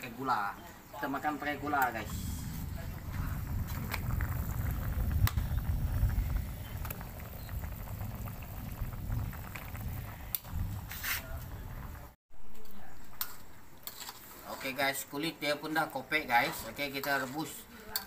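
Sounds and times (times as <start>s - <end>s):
low rumble: 1.8s - 12.2s
water boiling in a wok: 1.8s - 12.2s.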